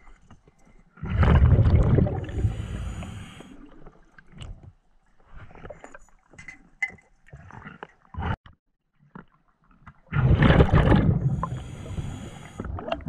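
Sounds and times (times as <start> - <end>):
scuba regulator exhaled bubbles: 1.0 - 3.8, 10.1 - 13.0.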